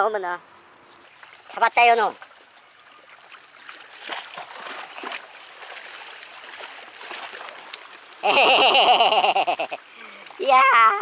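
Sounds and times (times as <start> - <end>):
water lapping against rocks: 0.8 - 11.0.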